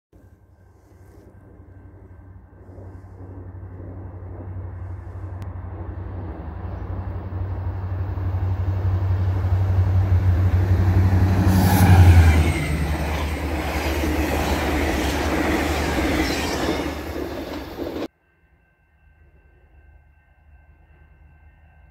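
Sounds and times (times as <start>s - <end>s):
diesel locomotive engine drone: 0.2s - 18.1s
train wheels clattering on rails: 8.8s - 18.1s.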